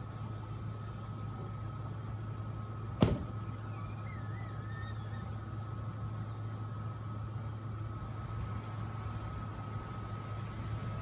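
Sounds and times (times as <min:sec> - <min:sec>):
low mechanical hum: 0:00.0 - 0:11.0
sharp knock: 0:03.0 - 0:03.4
faint wavering chirps: 0:03.4 - 0:06.6.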